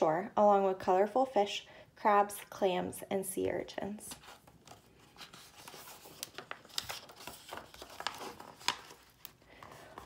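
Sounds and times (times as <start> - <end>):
paper page turning: 4.1 - 10.0.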